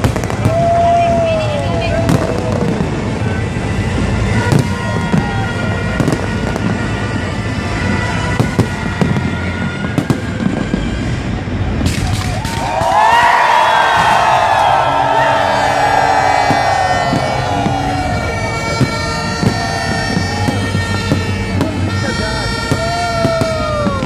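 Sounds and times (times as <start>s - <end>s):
sharp firework bangs: 0.0s - 1.4s, 2.0s - 24.0s
fireworks rumbling explosions: 0.0s - 24.0s.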